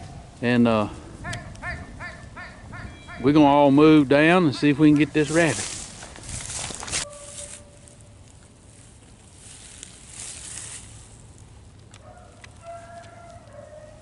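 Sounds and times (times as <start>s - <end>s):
dogs baying: 12.0s - 14.0s.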